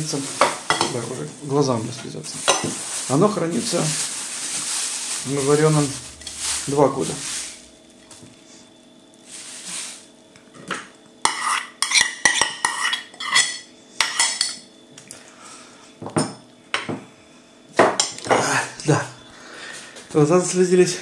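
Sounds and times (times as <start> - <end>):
plastic bag rustling: 0.1 - 10.2.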